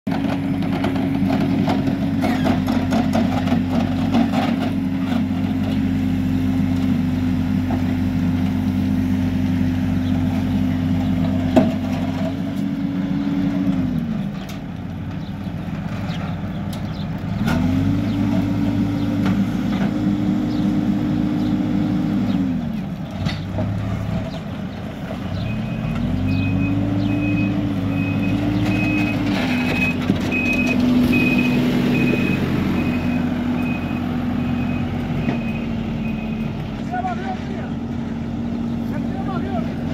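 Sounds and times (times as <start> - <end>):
diesel engine revving: 0.1 - 39.9
reversing alarm beeping: 25.4 - 36.6.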